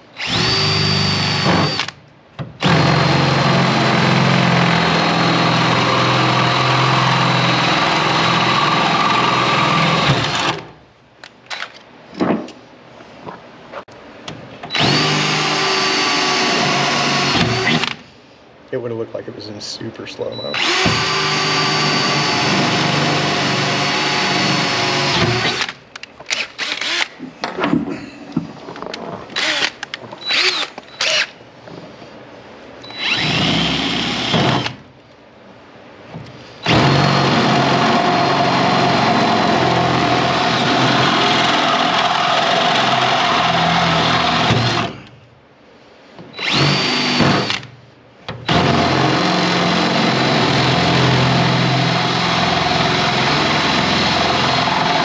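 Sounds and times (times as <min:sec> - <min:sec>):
cordless drill whining: 0:00.2 - 0:02.0, 0:02.6 - 0:10.6, 0:14.7 - 0:18.0, 0:20.5 - 0:27.1, 0:29.4 - 0:31.4, 0:32.8 - 0:34.8, 0:36.6 - 0:45.1, 0:46.3 - 0:47.7, 0:48.4 - 0:55.0.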